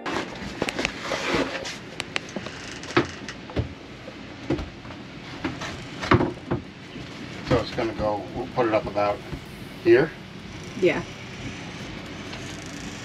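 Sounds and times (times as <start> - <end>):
rustling and scraping: 0.0 - 3.4, 5.2 - 9.4
knocks of wood on wood: 5.4 - 6.7.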